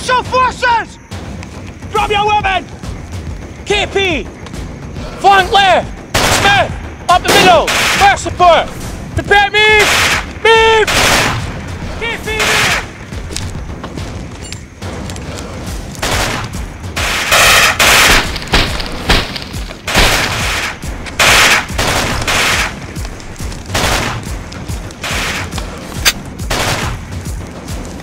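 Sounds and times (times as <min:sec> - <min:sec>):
single gunshots: 0:06.1 - 0:06.5, 0:07.3 - 0:08.1, 0:09.8 - 0:11.6, 0:16.0 - 0:22.8, 0:23.7 - 0:24.3, 0:25.0 - 0:27.0
automatic rifle fire: 0:10.9 - 0:11.4, 0:16.0 - 0:22.8, 0:23.7 - 0:24.2, 0:25.0 - 0:27.0.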